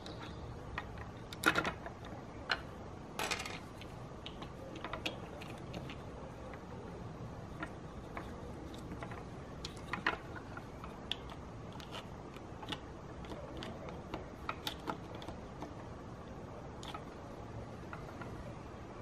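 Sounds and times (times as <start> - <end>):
plastic parts clicking together: 0.0 - 6.6, 7.6 - 15.8.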